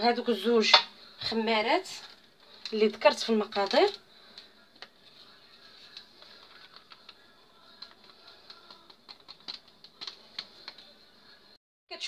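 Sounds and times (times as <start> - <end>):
plastic sieve ticking and tapping: 6.6 - 10.8.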